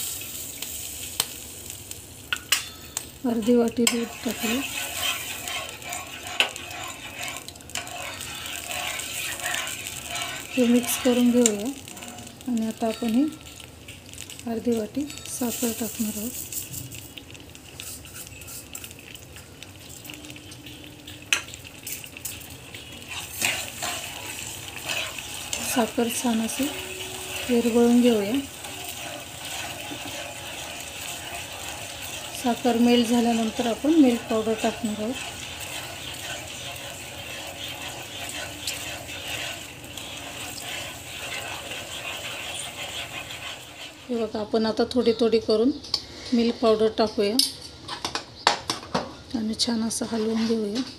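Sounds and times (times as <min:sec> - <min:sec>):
sizzling in a pan: 0:00.0 - 0:48.5, 0:49.1 - 0:50.9
spatula scraping pan bottom: 0:02.9 - 0:13.4, 0:22.7 - 0:44.3, 0:50.0 - 0:50.9.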